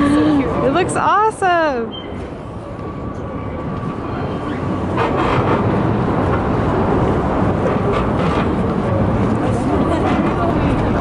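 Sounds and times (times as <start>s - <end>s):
faint voices of people: 0.0s - 4.8s, 7.6s - 11.0s
low outdoor rumble: 0.0s - 11.0s.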